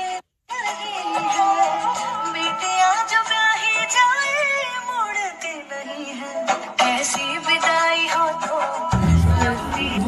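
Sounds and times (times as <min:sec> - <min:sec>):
instrumental backing music: 0:00.0 - 0:10.0.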